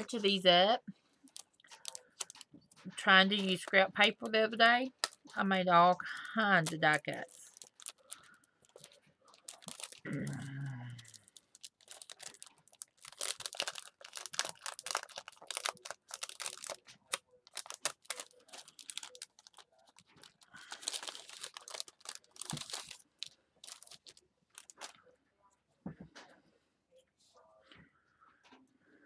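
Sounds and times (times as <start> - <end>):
plastic sleeve crinkling: 1.2 - 2.9, 6.6 - 10.4, 11.0 - 25.1.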